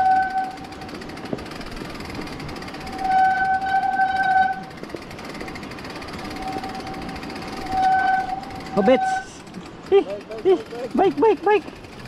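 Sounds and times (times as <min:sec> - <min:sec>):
tyres rolling over wet gravel: 0:00.6 - 0:12.0
bike disc brakes squealing: 0:02.7 - 0:04.7, 0:06.2 - 0:09.4.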